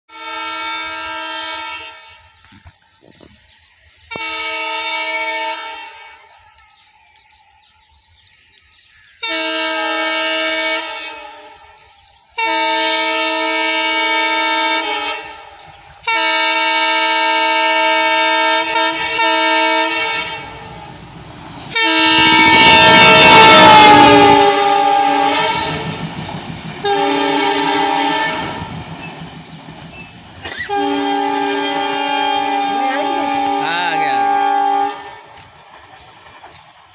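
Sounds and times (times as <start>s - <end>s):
locomotive horn blasts: 0.1s - 2.2s, 4.1s - 6.3s, 9.2s - 11.7s, 12.4s - 20.9s, 21.7s - 26.0s, 26.8s - 28.7s, 30.4s - 35.2s
locomotive engine and wheel noise: 1.8s - 4.7s, 9.9s - 33.6s, 34.2s - 36.9s.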